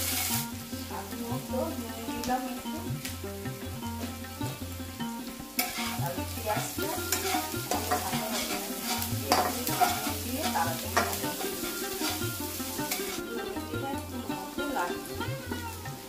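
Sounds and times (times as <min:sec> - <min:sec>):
spatula scraping pan: 0:00.0 - 0:00.5, 0:05.5 - 0:13.2
onions sizzling in oil: 0:00.0 - 0:16.0.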